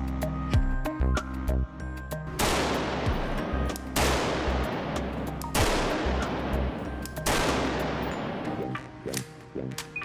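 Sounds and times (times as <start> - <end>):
background music: 0.0 - 10.0
rapid rifle gunfire: 2.4 - 8.2.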